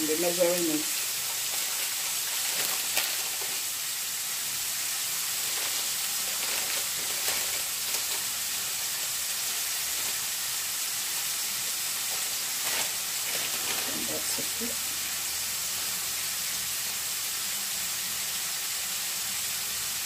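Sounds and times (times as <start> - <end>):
meat sizzling in a pan: 0.0 - 20.0
sharp crackles: 0.4 - 3.8, 5.3 - 10.4.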